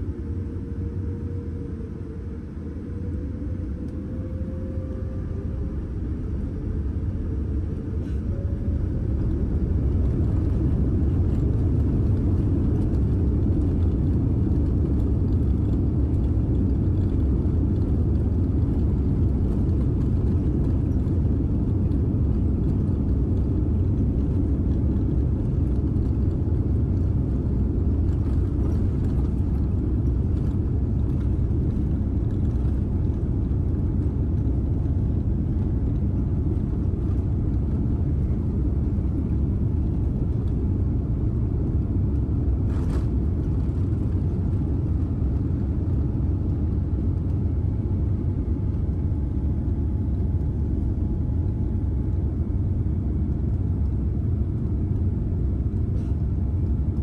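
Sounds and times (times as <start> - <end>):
jet engines whining: 0.0 - 55.0
wheels running on runway: 9.1 - 41.9.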